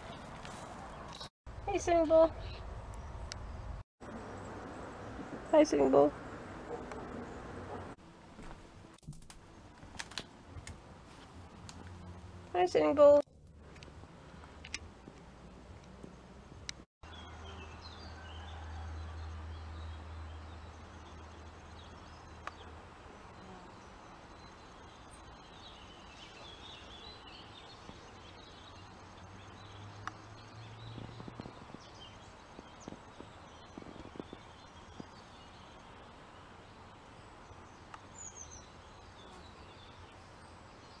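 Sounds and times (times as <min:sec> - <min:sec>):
small birds chirping: 0:00.0 - 0:07.8, 0:16.0 - 0:41.0.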